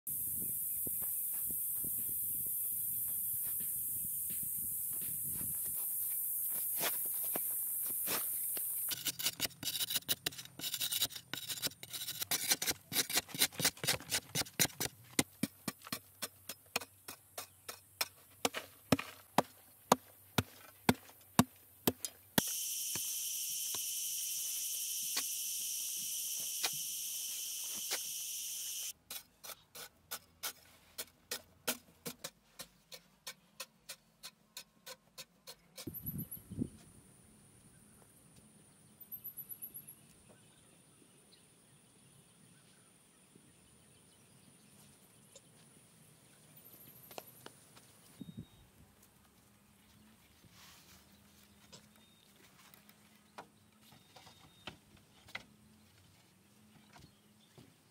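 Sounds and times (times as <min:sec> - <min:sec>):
high insect drone: 0:00.1 - 0:09.0, 0:22.4 - 0:28.9
hoe chopping dry soil: 0:06.8 - 0:25.3.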